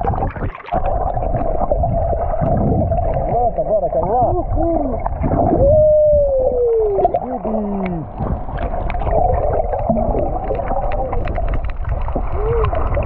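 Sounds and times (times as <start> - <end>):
churning water and bubbles underwater: 0.0 - 13.0
low rumble: 0.8 - 7.2.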